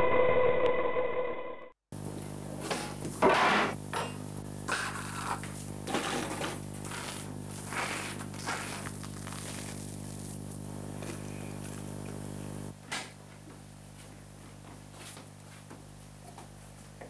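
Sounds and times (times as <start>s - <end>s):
knife scraping spread on bread: 4.8s - 5.4s, 6.8s - 10.5s.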